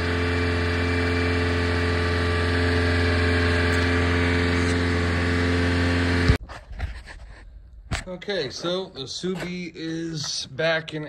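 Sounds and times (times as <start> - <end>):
small engine idling: 0.0 - 6.4.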